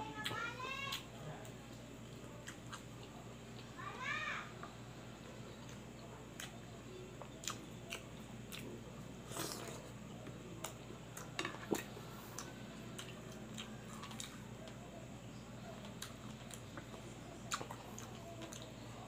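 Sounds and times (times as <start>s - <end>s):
person chewing wetly: 2.1s - 3.7s, 5.6s - 6.6s, 7.2s - 10.0s, 10.6s - 14.8s, 15.8s - 19.0s.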